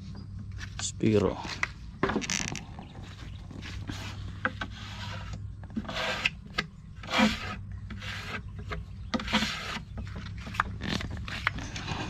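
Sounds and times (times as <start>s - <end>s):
sandpaper rubbing on wood: 3.6s - 6.4s, 7.0s - 8.4s, 9.2s - 9.8s.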